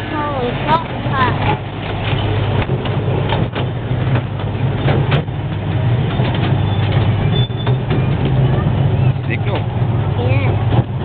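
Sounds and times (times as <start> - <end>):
miniature train rumbling: 0.0 - 11.0
train track clicks: 0.7 - 11.0.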